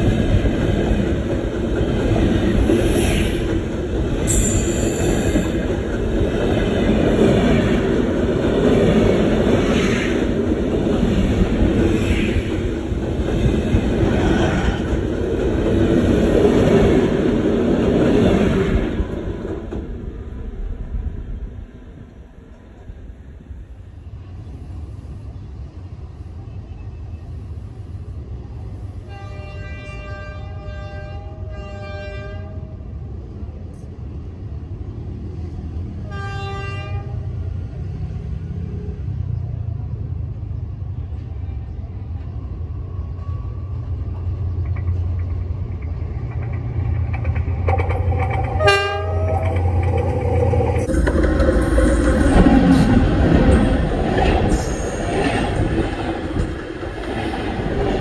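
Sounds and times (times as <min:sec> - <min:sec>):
train rolling over rails: 0:00.0 - 0:58.0
locomotive horn: 0:29.1 - 0:32.8, 0:36.0 - 0:37.3, 0:48.6 - 0:49.6
locomotive engine rumble: 0:39.4 - 0:58.0.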